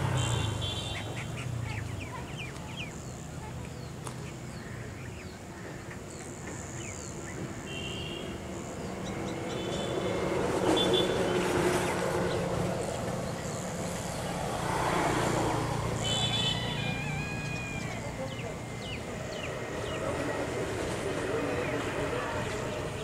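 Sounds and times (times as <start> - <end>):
passing motor vehicle rushing: 0.0 - 1.6, 8.8 - 23.0.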